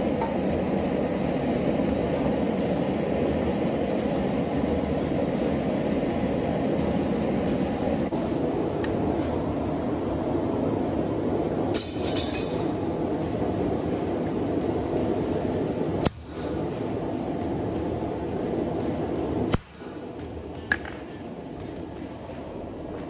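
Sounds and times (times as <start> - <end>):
steady rushing noise: 0.0 - 23.0
steel clinking on anvil: 8.8 - 9.1, 11.8 - 12.8, 20.7 - 21.1.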